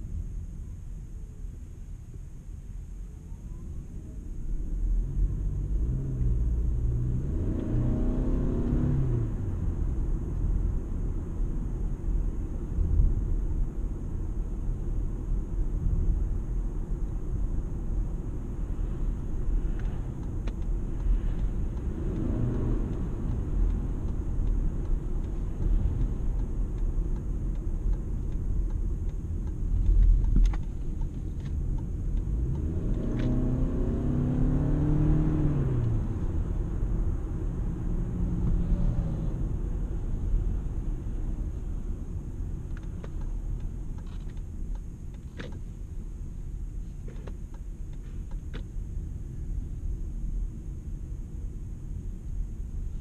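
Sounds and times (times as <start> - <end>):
car road and drivetrain rumble: 0.0 - 53.0
car engine revving: 5.0 - 11.2, 18.1 - 42.0
faint clicks: 19.8 - 33.4.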